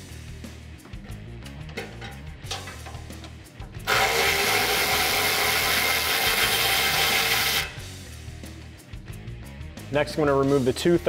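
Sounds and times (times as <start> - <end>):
background music: 0.0 - 11.0
cordless power tool whining: 3.9 - 7.8.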